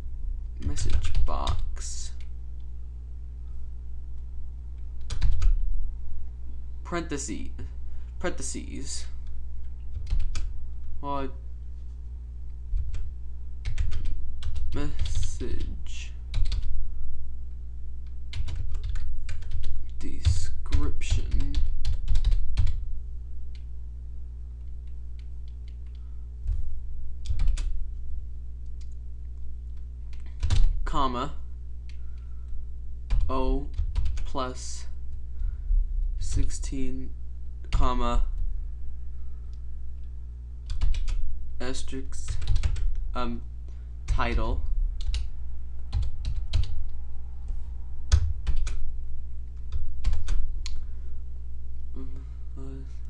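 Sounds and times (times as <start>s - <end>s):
low electrical hum: 0.0s - 53.0s
computer keyboard typing: 0.6s - 2.3s, 5.0s - 5.6s, 9.7s - 10.5s, 12.8s - 15.7s, 16.3s - 16.7s, 18.3s - 22.8s, 27.2s - 27.8s, 30.1s - 30.7s, 33.1s - 34.3s, 40.7s - 41.2s, 42.2s - 43.0s, 45.0s - 45.3s, 45.9s - 46.8s, 48.1s - 48.8s, 49.7s - 50.8s
keyboard keys clicking: 5.0s - 5.6s, 9.9s - 10.5s, 12.8s - 15.2s, 18.3s - 19.9s, 27.2s - 27.8s, 42.3s - 43.0s, 45.9s - 46.8s.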